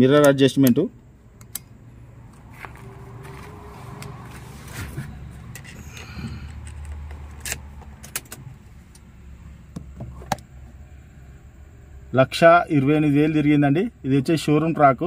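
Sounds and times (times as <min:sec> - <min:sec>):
steady low hum: 0:00.0 - 0:15.0
ignition switch clicks: 0:00.1 - 0:01.8
car keys jangling: 0:05.4 - 0:09.0.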